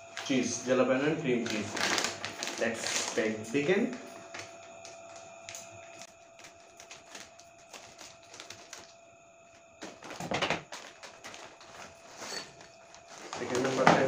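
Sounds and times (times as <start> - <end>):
chip bag rustling: 1.3 - 9.0, 9.8 - 14.0
scissors snipping plastic bag: 1.4 - 3.3, 3.9 - 9.0, 9.8 - 14.0.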